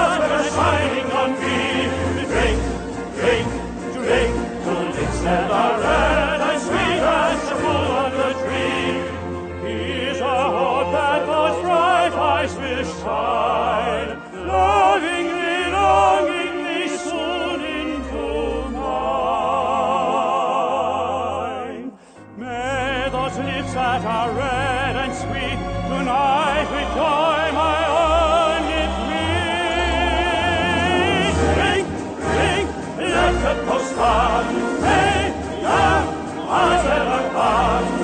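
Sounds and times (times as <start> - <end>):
instrumental accompaniment: 0.0 - 19.4, 22.0 - 38.0
operatic singing with vibrato: 0.0 - 38.0.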